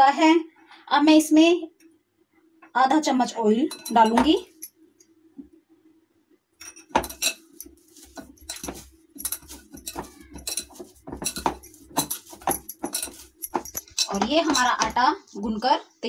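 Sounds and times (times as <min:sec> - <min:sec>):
bangles jingling against glass bowl: 0:03.7 - 0:04.7, 0:06.6 - 0:15.1
dough kneaded by hand: 0:06.9 - 0:15.6.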